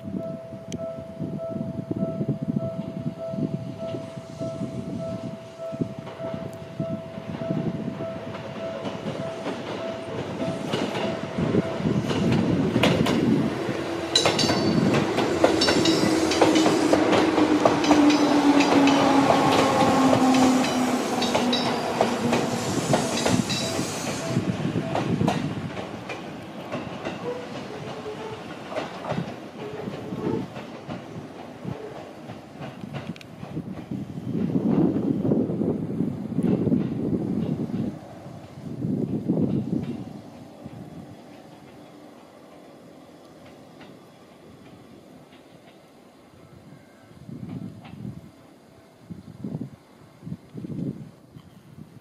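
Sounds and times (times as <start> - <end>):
wheels clicking over rail joints: 8.3 - 35.0, 36.4 - 46.0.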